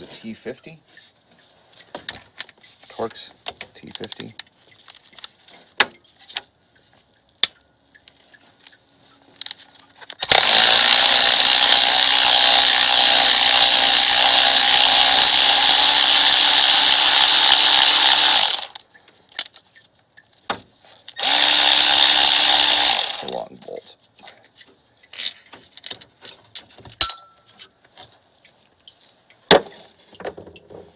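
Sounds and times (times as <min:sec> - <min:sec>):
power tool spinning bolt: 0:10.2 - 0:18.8, 0:21.2 - 0:23.4.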